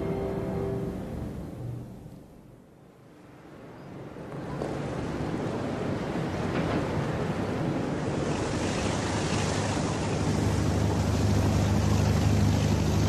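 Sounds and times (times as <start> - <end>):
low engine drone: 0.0 - 2.7, 8.4 - 13.0
wind: 0.0 - 13.0
rushing water: 4.2 - 13.0.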